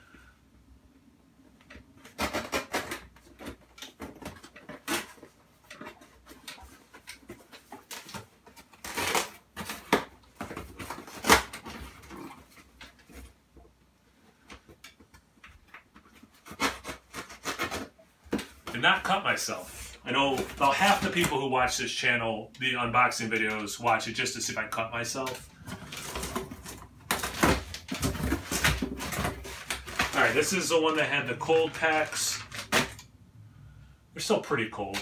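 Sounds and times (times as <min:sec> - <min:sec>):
knife slicing packing tape: 0:16.4 - 0:17.9
cardboard box rustling: 0:25.3 - 0:33.0.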